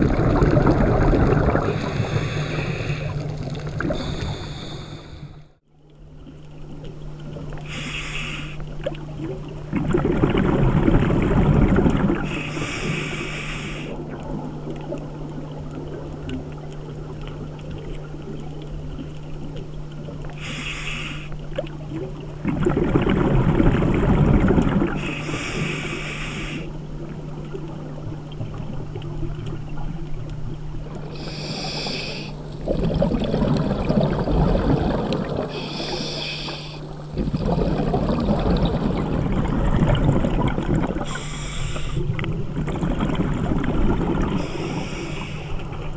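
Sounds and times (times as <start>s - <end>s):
exhaled air bubbling: 0.0s - 7.9s, 8.7s - 45.9s
diver breathing through regulator: 1.6s - 5.6s, 7.7s - 8.6s, 12.3s - 14.0s, 20.4s - 21.3s, 25.0s - 26.7s, 31.2s - 32.4s, 35.5s - 37.0s, 41.0s - 42.2s, 44.3s - 45.7s.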